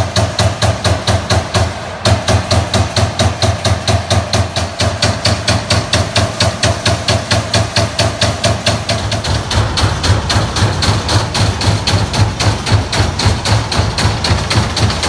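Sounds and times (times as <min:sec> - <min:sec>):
punch press punching sheet metal: 0:00.0 - 0:15.0
steady machine hum: 0:00.0 - 0:15.0.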